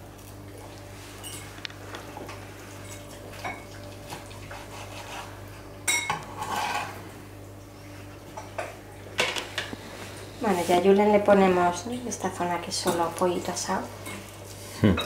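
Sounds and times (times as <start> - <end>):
steady low hum: 0.0 - 15.0
dishes and cutlery clattering: 5.8 - 7.0.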